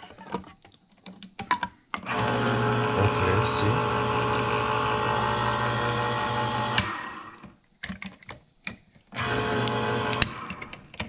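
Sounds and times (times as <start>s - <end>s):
can opener motor running: 2.0s - 7.6s, 9.1s - 11.0s
can opener click: 9.2s - 11.0s.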